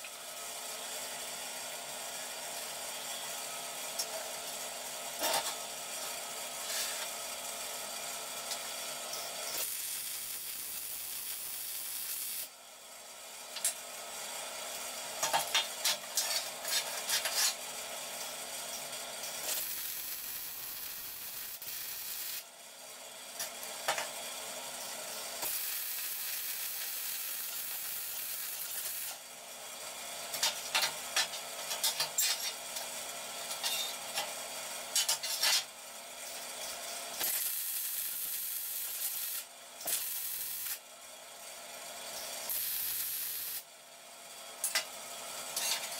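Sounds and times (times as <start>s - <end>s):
welding arc crackling and hissing: 8.4s - 12.5s, 19.2s - 22.5s, 25.1s - 29.2s, 30.3s - 32.6s, 37.1s - 40.8s, 42.2s - 43.7s.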